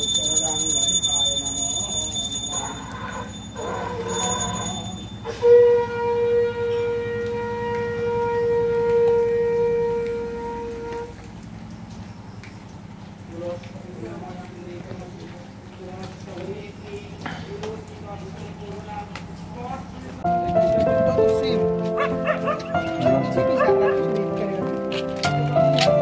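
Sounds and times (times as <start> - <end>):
bell ringing: 0.0 - 5.4
conch shell blown: 4.1 - 11.3.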